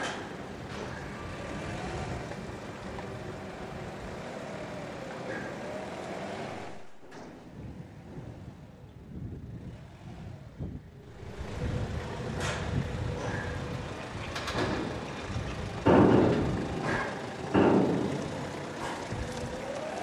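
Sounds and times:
forklift engine running: 0.0 - 20.0
loud bangs: 14.3 - 19.3.

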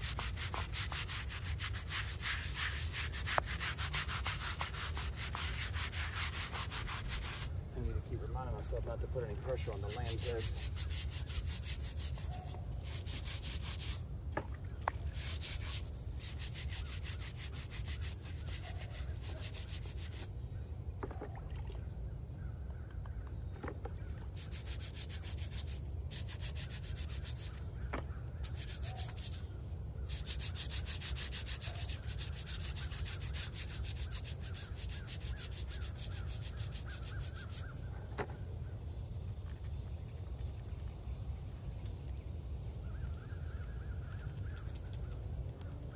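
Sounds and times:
bristle brush scrubbing stone: 0.0 - 7.5, 9.4 - 14.0, 15.1 - 20.3, 24.4 - 27.6, 28.4 - 29.5, 30.1 - 37.8.

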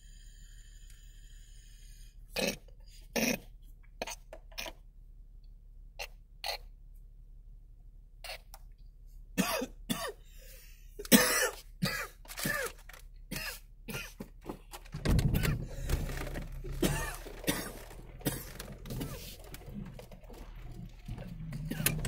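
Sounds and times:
low steady hum: 4.8 - 22.0
person coughing: 9.4 - 10.2, 11.0 - 14.2, 16.7 - 19.4.

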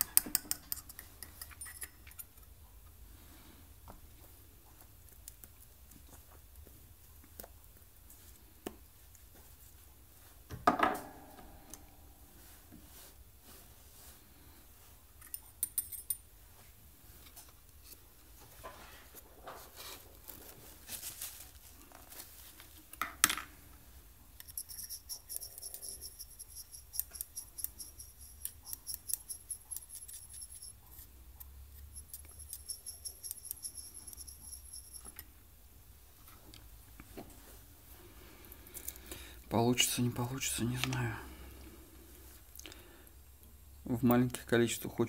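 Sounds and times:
paintbrush clinking in steel cup: 0.0 - 2.4, 24.4 - 30.8, 31.8 - 35.3.

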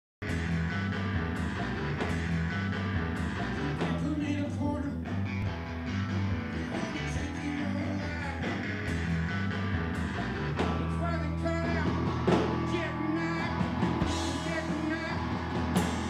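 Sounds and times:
rockabilly band playing: 0.2 - 16.0.

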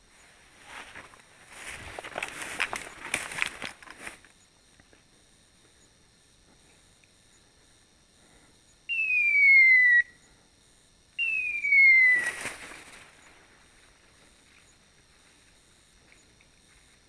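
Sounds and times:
falling electronic whistle tones: 11.2 - 12.4.

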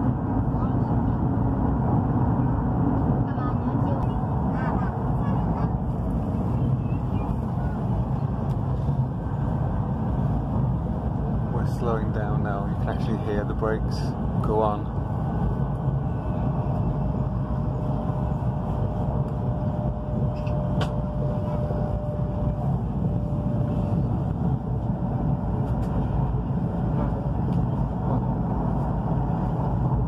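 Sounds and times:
thin steady whine: 3.3 - 30.0
train cabin rumble: 17.4 - 30.0.

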